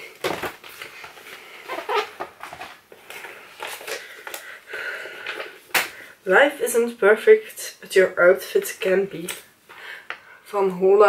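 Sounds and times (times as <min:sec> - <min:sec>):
paper brochure rustling: 0:00.2 - 0:04.5.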